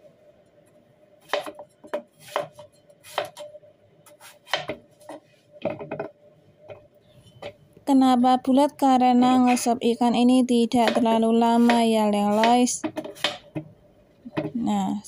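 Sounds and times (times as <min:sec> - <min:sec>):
faint steady hum: 0:00.0 - 0:15.0
knife cutting on cutting board: 0:02.2 - 0:03.4.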